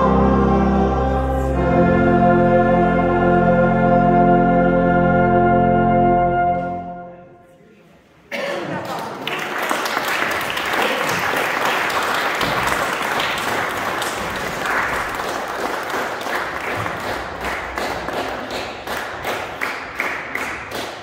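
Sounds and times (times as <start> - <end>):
congregation applauding: 8.8 - 21.0.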